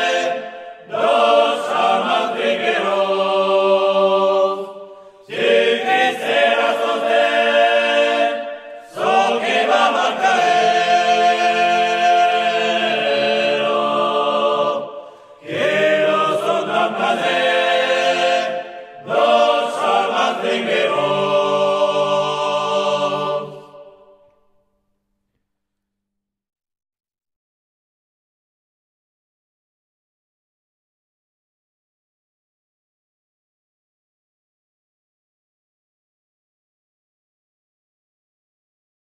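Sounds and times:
men singing a cappella in harmony: 0:00.0 - 0:24.0.

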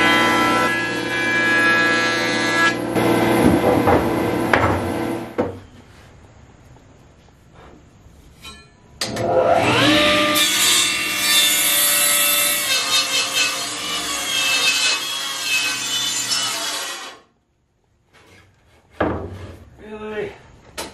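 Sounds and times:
power saw cutting wood: 0:00.0 - 0:05.3, 0:09.0 - 0:17.2.

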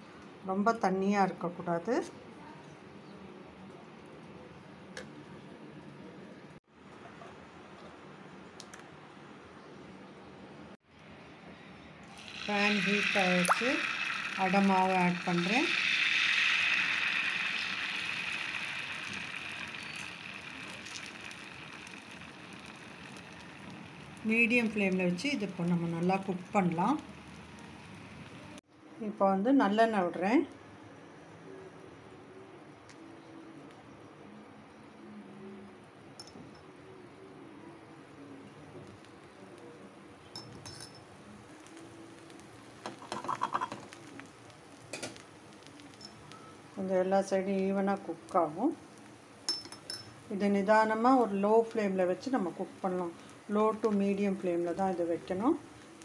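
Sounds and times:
batter sizzling on a hot pan: 0:12.1 - 0:28.6, 0:38.8 - 0:56.0.

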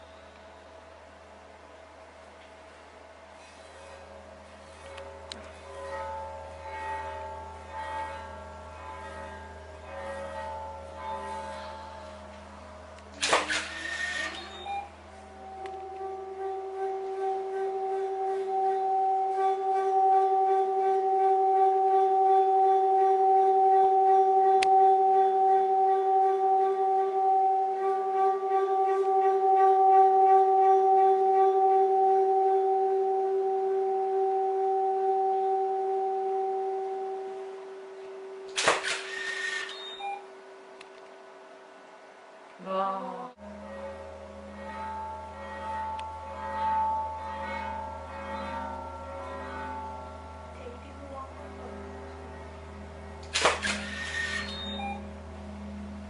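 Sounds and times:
lower steady tone: 0:00.0 - 0:56.0
sustained ringing tones: 0:00.0 - 0:56.0.

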